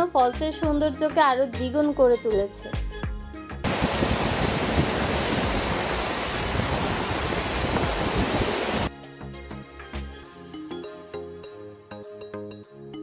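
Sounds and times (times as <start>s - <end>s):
background music: 0.0s - 3.7s, 8.9s - 13.0s
waterfall rushing: 3.6s - 8.9s.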